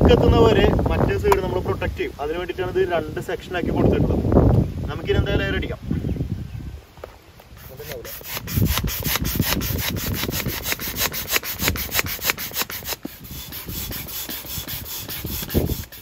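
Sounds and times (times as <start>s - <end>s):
hand air pump strokes: 7.4s - 16.0s.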